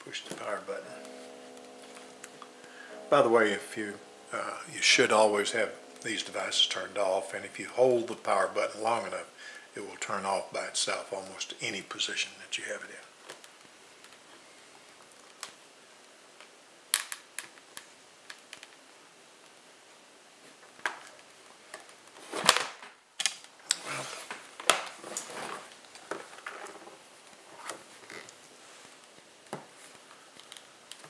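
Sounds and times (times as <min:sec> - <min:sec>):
plastic case clicks and snaps: 0:16.9 - 0:17.5
rubbing and handling noise: 0:20.4 - 0:31.0.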